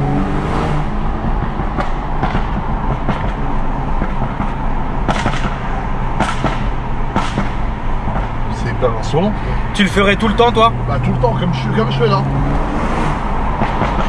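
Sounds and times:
car engine under throttle: 0.0 - 14.0
exhaust pops: 1.1 - 8.9.

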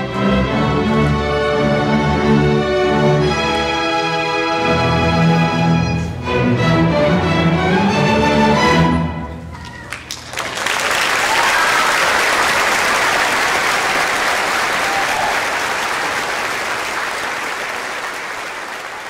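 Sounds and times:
audience applause: 9.6 - 19.0.

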